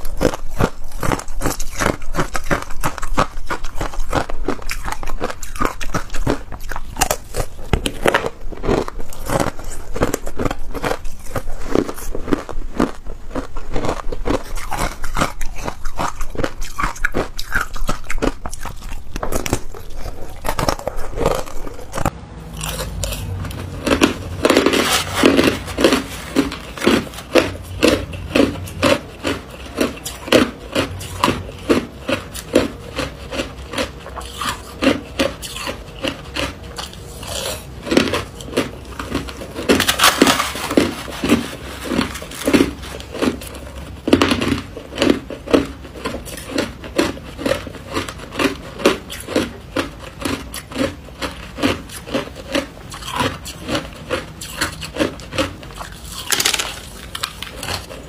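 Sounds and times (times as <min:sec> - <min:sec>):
chewing crushed ice: 0:00.0 - 0:58.0
spoon scraping through ice: 0:22.7 - 0:45.1, 0:50.1 - 0:58.0.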